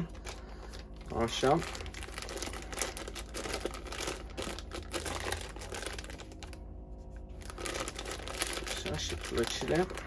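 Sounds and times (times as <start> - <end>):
plastic bag crinkling: 0.0 - 6.6, 7.3 - 10.0.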